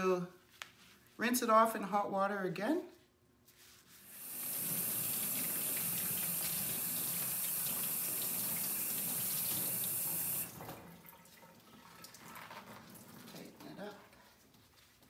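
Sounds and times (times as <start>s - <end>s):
water running into sink: 4.1s - 13.6s.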